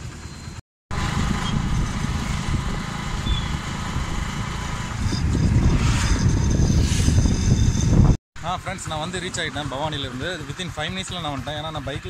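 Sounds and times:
motorcycle engine rumble: 0:00.0 - 0:12.0
wind buffeting microphone: 0:00.9 - 0:08.2.

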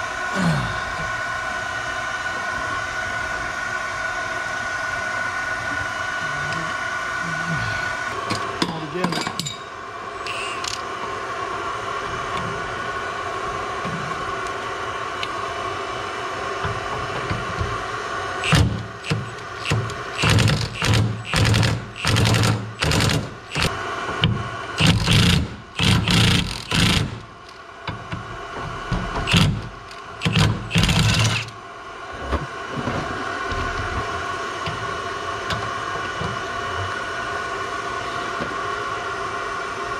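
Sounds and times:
steady mechanical hum: 0:00.0 - 0:39.9
impact wrench hammering bursts: 0:18.4 - 0:23.8, 0:24.8 - 0:28.2, 0:29.1 - 0:31.6.

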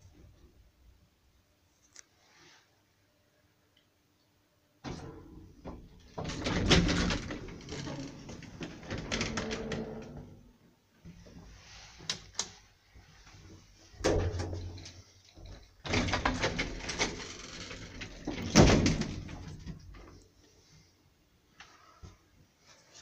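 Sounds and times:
elevator doors clattering: 0:04.9 - 0:10.4, 0:15.8 - 0:19.8.

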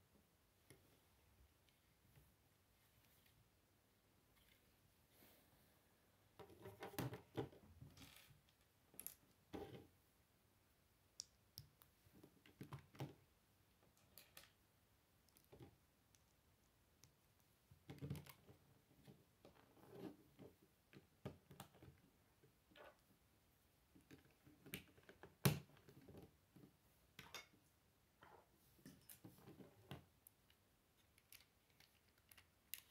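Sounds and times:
plastic bricks clicking: 0:31.0 - 0:32.9.

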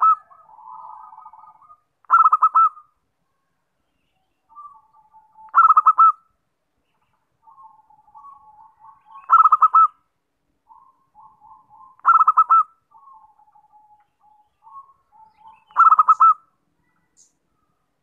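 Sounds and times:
dove cooing: 0:00.0 - 0:02.9, 0:04.5 - 0:06.2, 0:07.4 - 0:10.0, 0:10.7 - 0:16.5.

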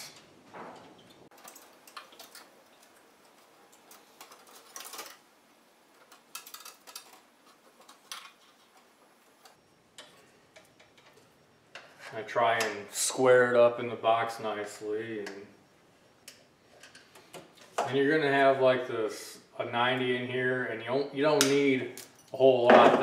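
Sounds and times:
wires clicking and scraping: 0:00.0 - 0:12.8, 0:16.1 - 0:18.0.

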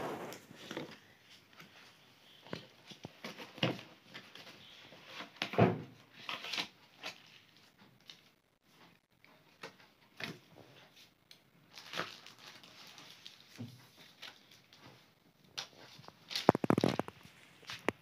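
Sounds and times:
packaging crinkling: 0:11.7 - 0:14.6, 0:15.6 - 0:18.0.

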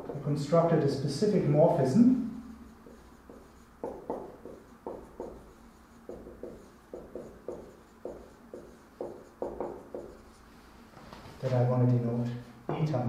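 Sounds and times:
writing tool tapping and stroking: 0:02.7 - 0:10.4.

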